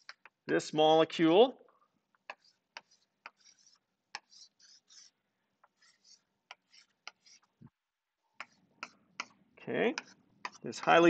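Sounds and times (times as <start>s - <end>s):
chalk scratching on a blackboard: 0.0s - 0.3s, 2.2s - 7.6s, 8.4s - 11.0s.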